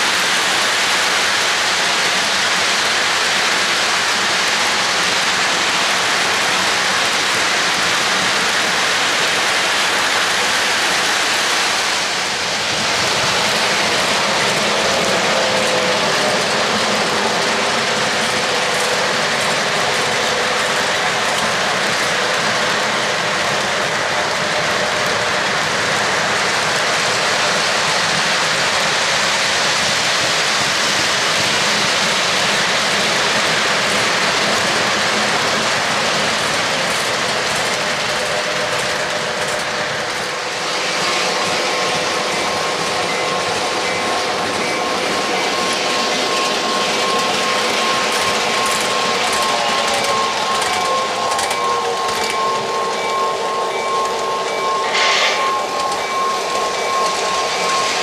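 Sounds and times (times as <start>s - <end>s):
faint locomotive whine: 0.0s - 58.0s
metal wheels clattering on rails: 0.0s - 58.0s.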